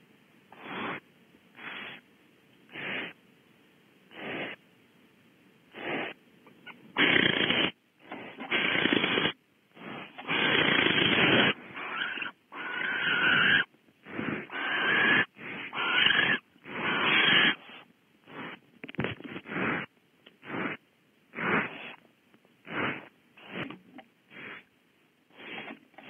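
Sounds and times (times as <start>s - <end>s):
owls hissing snore calls: 0.5s - 2.0s, 2.7s - 3.2s, 4.1s - 4.6s, 5.7s - 18.6s, 19.3s - 22.0s, 22.6s - 24.7s, 25.3s - 26.0s.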